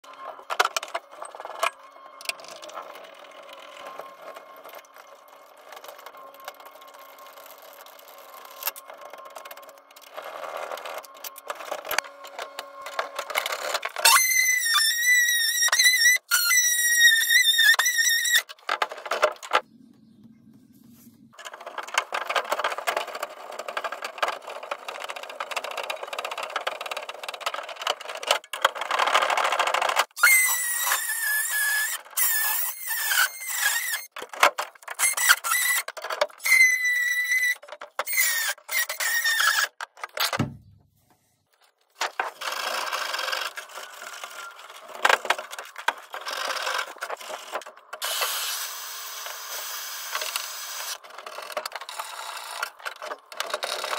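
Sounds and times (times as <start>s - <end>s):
oscillating multi-tool cutting: 0.1s - 19.6s, 28.8s - 34.2s, 34.8s - 40.4s, 42.2s - 53.9s.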